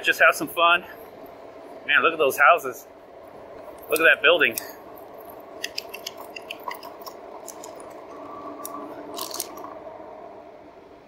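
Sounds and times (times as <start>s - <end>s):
bike clicks and rattles: 3.6s - 9.7s
electric bike motor whine: 7.0s - 11.0s.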